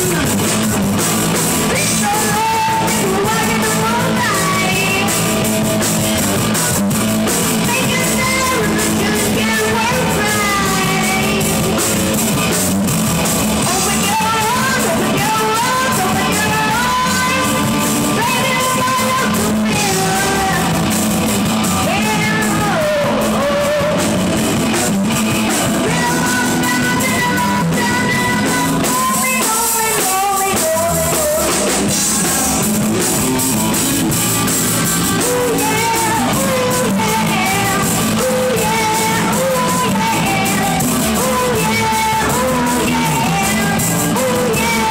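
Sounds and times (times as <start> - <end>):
drum kit: 0.0 - 44.9
electric bass: 0.0 - 44.9
electric guitar: 0.0 - 44.9.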